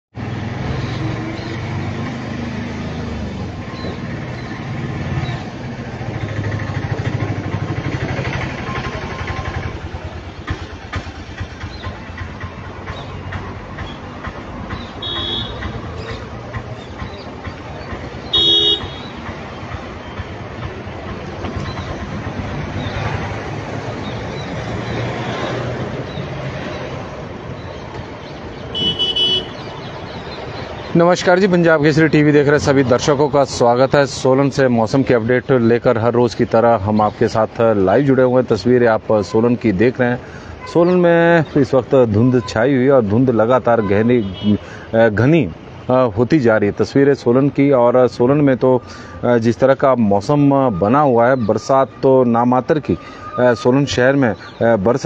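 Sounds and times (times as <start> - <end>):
street traffic: 0.1 - 55.0
vehicle engine running: 0.3 - 29.5
vehicle horn: 15.0 - 15.7, 18.3 - 19.2, 28.7 - 29.6.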